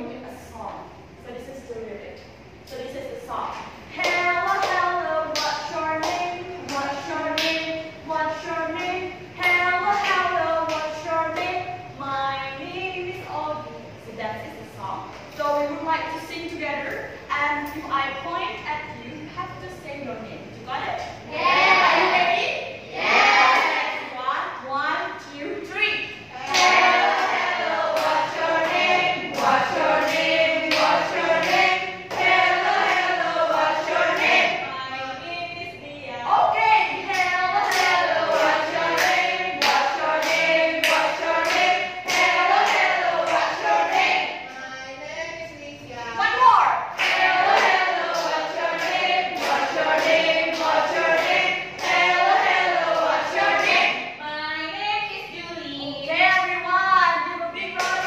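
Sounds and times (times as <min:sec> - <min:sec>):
women singing in unison: 0:26.2 - 0:44.5, 0:47.0 - 0:58.0.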